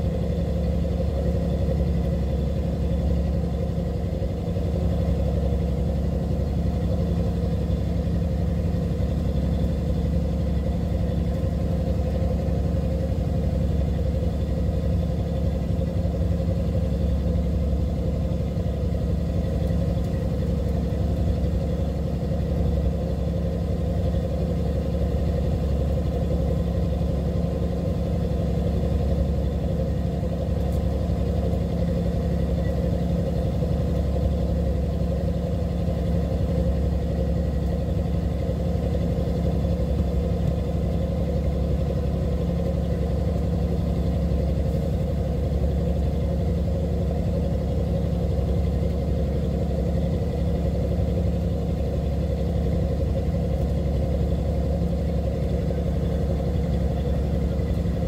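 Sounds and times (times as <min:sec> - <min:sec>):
boat engine droning: 0:00.0 - 0:58.0
faint steady whines: 0:00.0 - 0:58.0.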